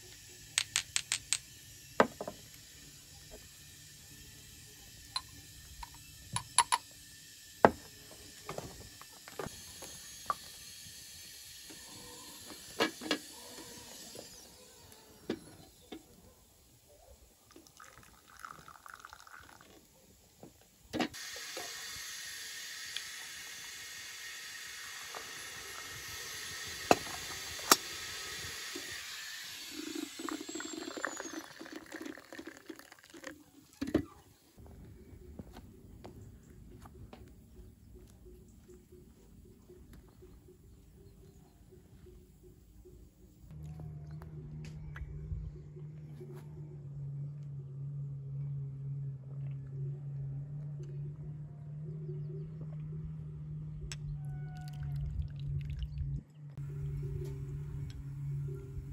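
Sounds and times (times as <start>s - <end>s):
hot water pouring into glass: 17.5s - 19.8s, 21.2s - 33.7s.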